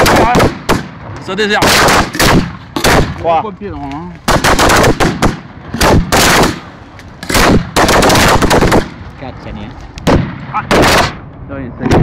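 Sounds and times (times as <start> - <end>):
fireworks bangs: 0.0 - 3.3, 4.2 - 9.1, 10.0 - 11.2.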